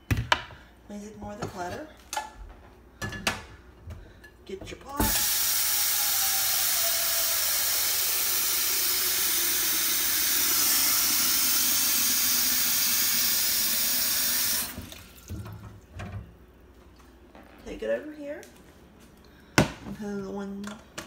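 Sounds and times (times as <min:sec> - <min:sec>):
faucet running into a pot: 0:05.0 - 0:15.3.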